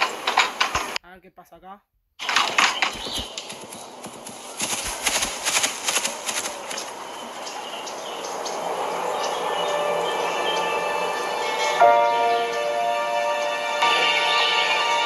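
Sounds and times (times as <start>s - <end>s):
horse hooves on paving stones: 2.2s - 7.0s.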